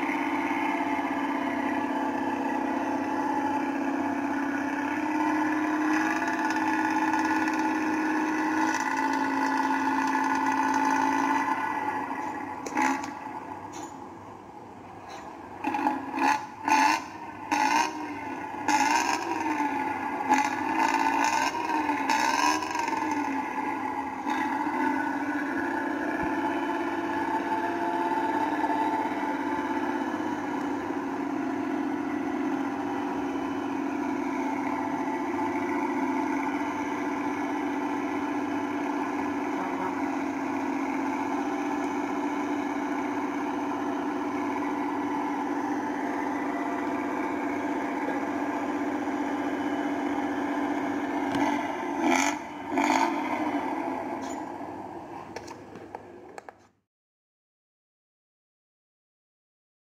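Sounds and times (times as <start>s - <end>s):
bus engine revving and idling: 0.0s - 56.7s.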